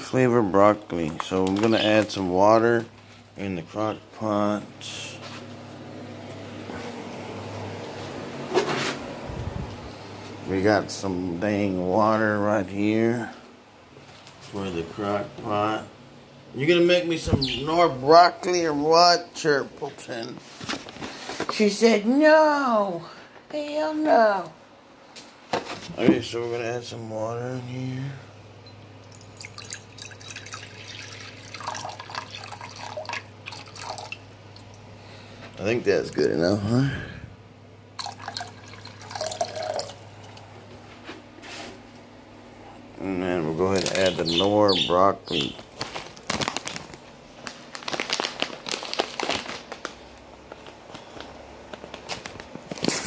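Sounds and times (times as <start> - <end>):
water pouring into ceramic pot: 29.0 - 34.8, 38.0 - 40.4
packet crinkling: 43.6 - 44.6, 45.3 - 53.0.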